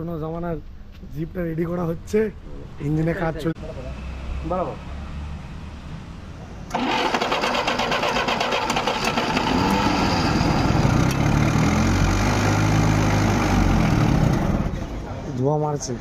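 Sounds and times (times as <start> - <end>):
petrol engine starting and running: 6.6 - 15.2.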